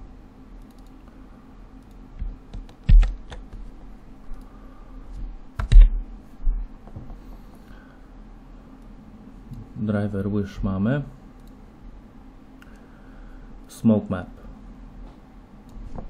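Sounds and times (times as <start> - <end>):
low steady hum: 0.0 - 16.0
keyboard and mouse clicking: 0.6 - 1.0, 1.8 - 3.6.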